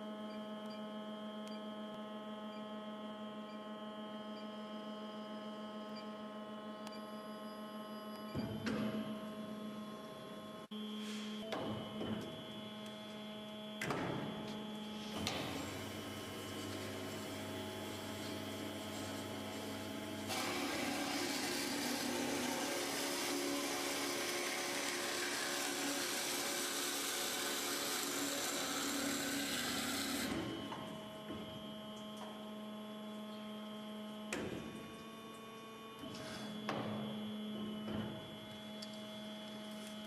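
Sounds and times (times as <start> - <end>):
electric and hydraulic hum: 0.0 - 40.0
band saw running: 15.2 - 30.4.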